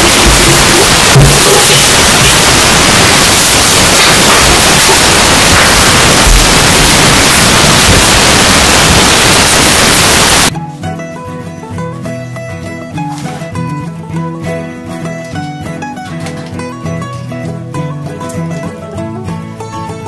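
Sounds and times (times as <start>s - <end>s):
plucked string music: 0.0s - 7.0s, 10.5s - 20.0s
static hiss: 0.0s - 10.5s.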